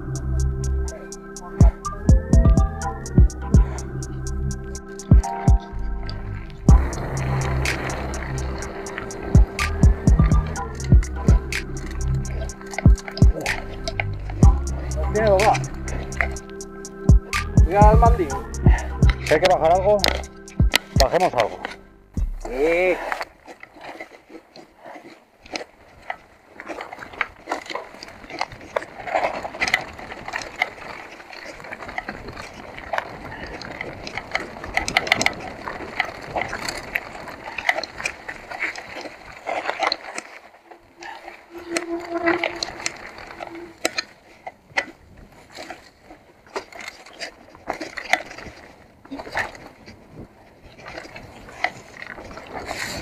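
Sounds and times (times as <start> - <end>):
bike tyres rolling over dirt: 0.0 - 53.0
bike and chain clacking: 6.6 - 18.0, 26.0 - 50.0.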